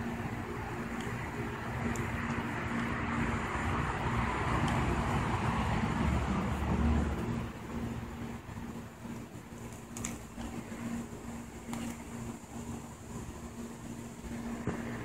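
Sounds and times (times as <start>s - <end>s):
steady low hum: 0.0s - 15.0s
car passing: 2.6s - 8.2s.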